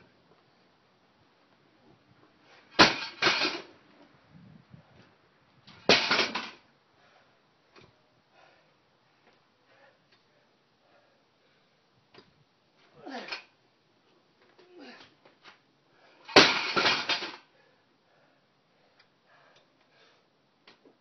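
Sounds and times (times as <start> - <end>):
barbell clanging on concrete: 16.3 - 17.4.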